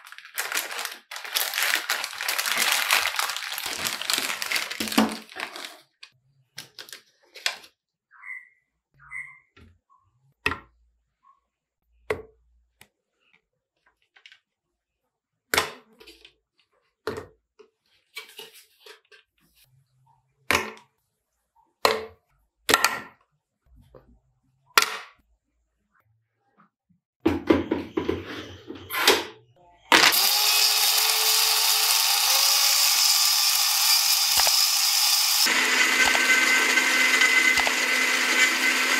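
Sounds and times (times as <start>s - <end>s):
ice cream cubes knocking in blender jug: 0.3s - 5.7s.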